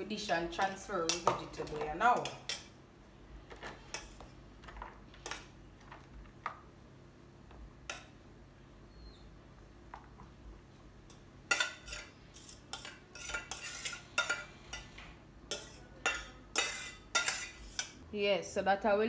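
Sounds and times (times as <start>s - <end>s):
metal bowl scraping and clanking: 11.1s - 18.0s.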